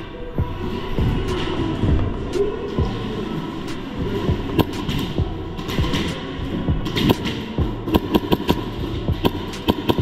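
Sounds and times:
steady hum: 0.0s - 10.0s
airsoft guns firing: 7.0s - 10.0s.

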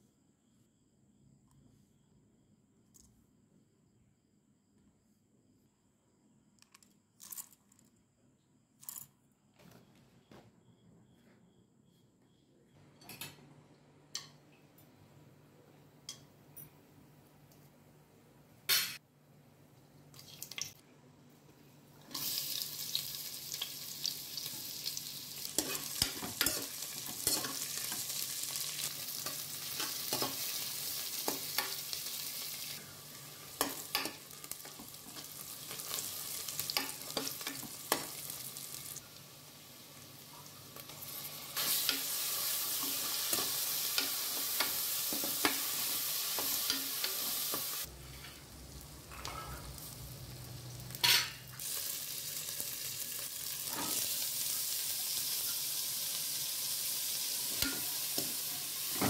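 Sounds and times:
onions sizzling in hot oil: 22.0s - 59.0s.

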